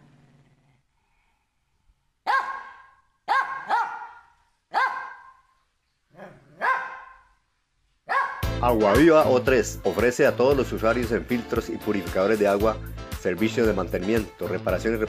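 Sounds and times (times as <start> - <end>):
dog barking: 2.3 - 5.6, 6.2 - 7.4, 8.1 - 8.5.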